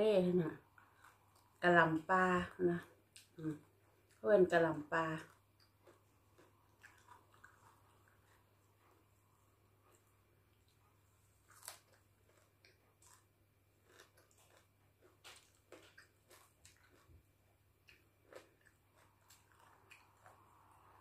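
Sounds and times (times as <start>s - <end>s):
person chewing greens: 0.6s - 1.8s, 2.8s - 4.2s, 4.9s - 21.0s.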